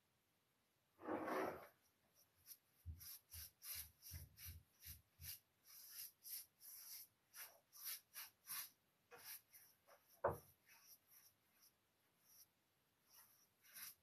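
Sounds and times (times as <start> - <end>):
brush swishing on wood: 1.0 - 14.0.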